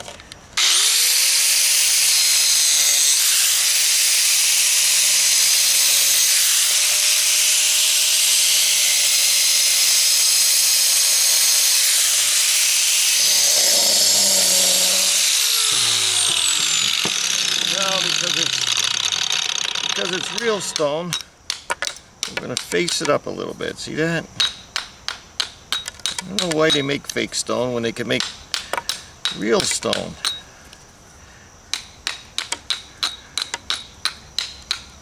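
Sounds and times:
angle grinder cutting stone: 0:00.6 - 0:21.1.

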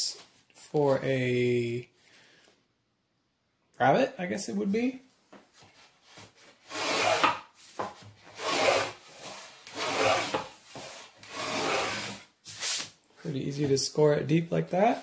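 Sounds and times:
gauge cutter scraping wood: 0:06.7 - 0:07.4, 0:08.3 - 0:12.3.

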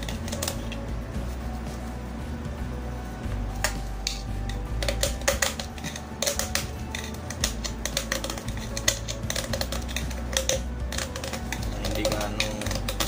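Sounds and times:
metal blade cutting a can: 0:03.6 - 0:13.0.

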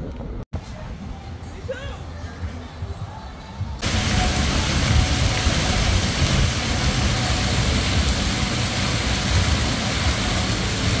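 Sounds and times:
fountain water splashing into pool: 0:03.8 - 0:11.0.

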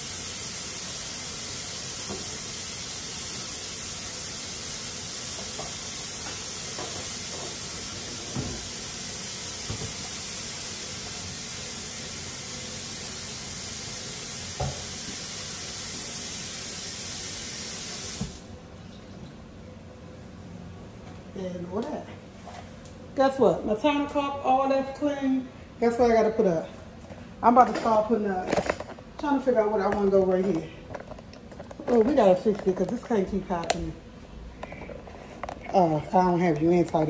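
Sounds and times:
steady hiss: 0:00.0 - 0:18.5.

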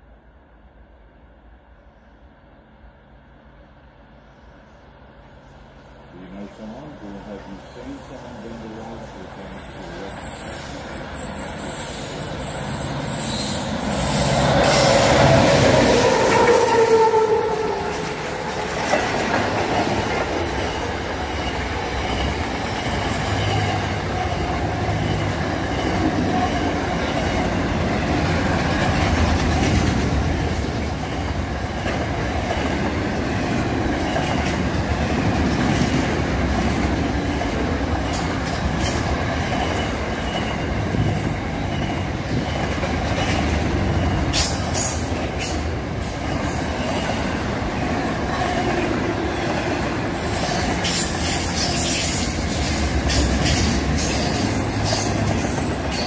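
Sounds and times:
diesel train passing: 0:00.0 - 0:56.0
train horn: 0:13.2 - 0:18.4.

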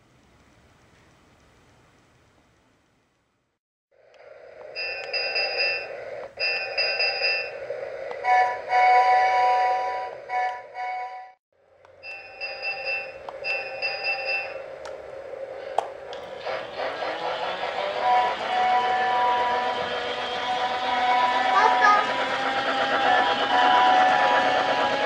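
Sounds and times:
toy train bell and whistle effects: 0:04.7 - 0:07.6, 0:12.0 - 0:14.7, 0:17.4 - 0:25.0.

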